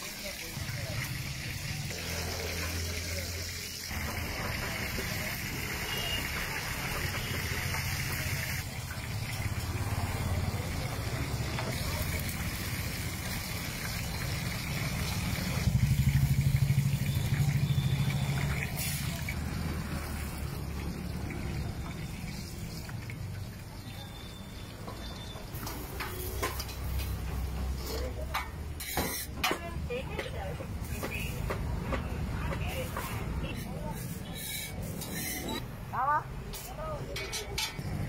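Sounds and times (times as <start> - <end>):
fish sizzling in oil: 0.0 - 27.6.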